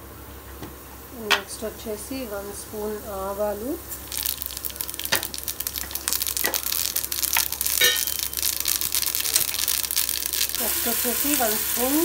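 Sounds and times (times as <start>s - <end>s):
seeds sizzling in hot oil: 1.5s - 12.0s
mustard seeds popping: 3.8s - 12.0s.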